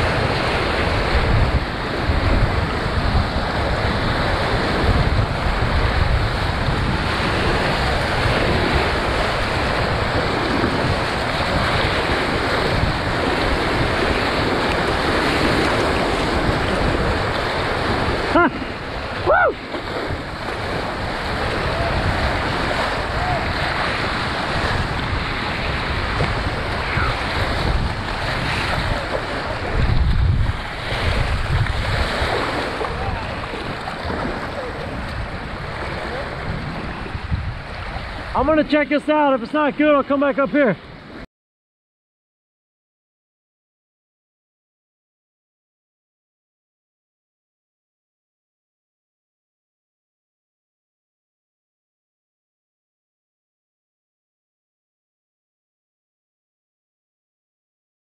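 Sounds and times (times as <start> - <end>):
wind buffeting microphone: 0.0 - 38.8
whitewater rushing: 0.0 - 41.1.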